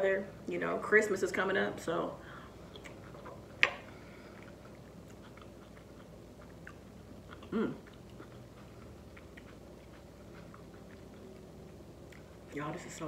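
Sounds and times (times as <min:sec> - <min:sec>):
person chewing food: 0:02.5 - 0:12.6.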